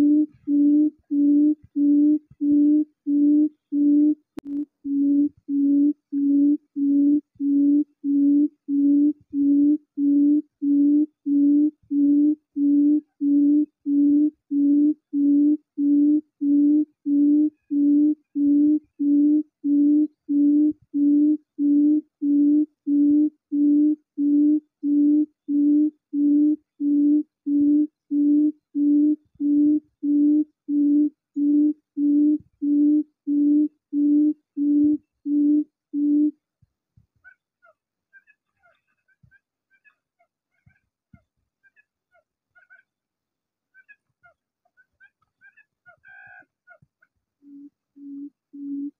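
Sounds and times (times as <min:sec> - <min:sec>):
quail call from speaker: 0:45.0 - 0:46.9.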